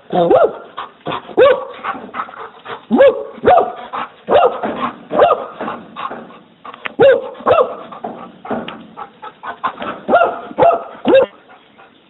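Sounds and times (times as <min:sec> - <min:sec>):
dog barking: 0:00.2 - 0:00.7, 0:01.4 - 0:02.0, 0:02.9 - 0:05.7, 0:07.0 - 0:07.9, 0:10.0 - 0:11.4.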